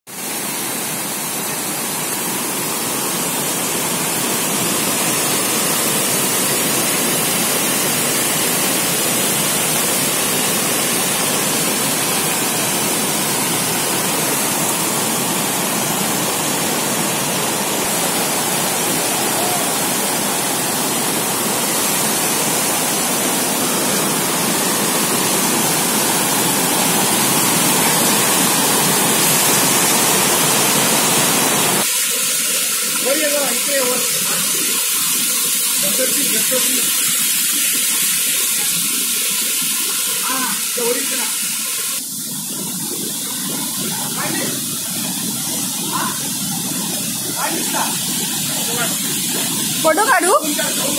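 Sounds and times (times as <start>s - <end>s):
stream rushing over rocks: 0.1s - 39.0s, 43.3s - 50.9s.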